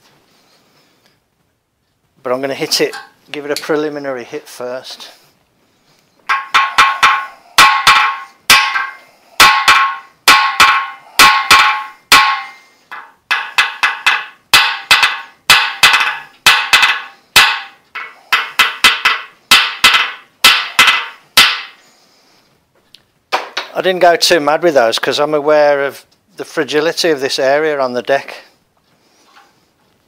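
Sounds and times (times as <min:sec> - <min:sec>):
hammer striking steel tool: 0:06.3 - 0:21.8.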